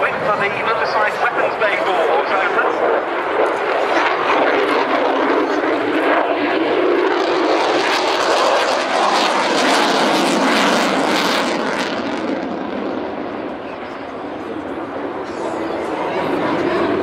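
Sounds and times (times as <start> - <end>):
jet roar with crackle: 0.0 - 14.3.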